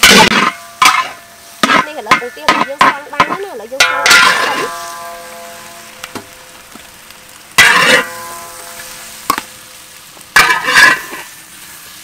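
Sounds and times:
metal spatula scraping a wok: 0:00.0 - 0:05.9, 0:07.6 - 0:09.3, 0:10.3 - 0:12.0
metal ringing: 0:00.0 - 0:06.4
eggs sizzling: 0:00.0 - 0:12.0.

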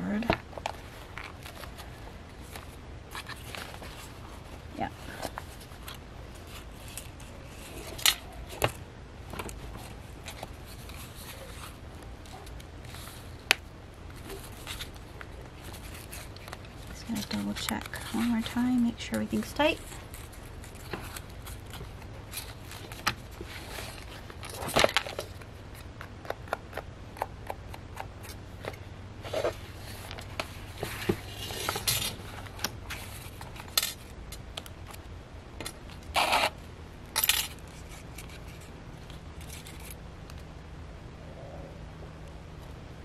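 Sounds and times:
paper pages rustling and flipping: 0:00.1 - 0:26.9.

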